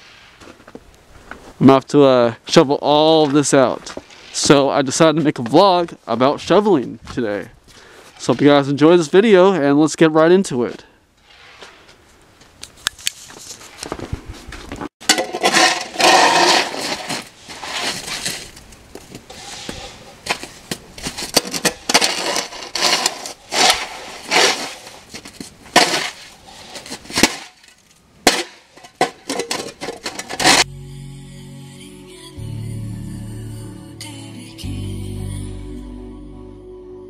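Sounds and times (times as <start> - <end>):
snow shovel scraping asphalt: 3.9 - 5.4, 11.2 - 12.0, 15.1 - 30.7.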